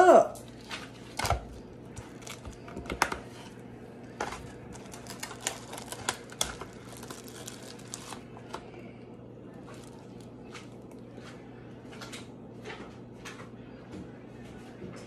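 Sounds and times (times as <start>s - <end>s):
plastic tray crackling: 0.4s - 3.5s, 4.1s - 8.6s.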